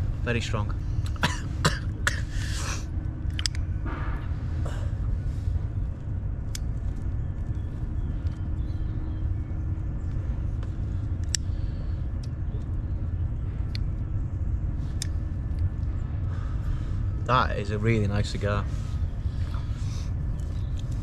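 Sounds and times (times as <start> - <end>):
low rumble: 0.0 - 21.0.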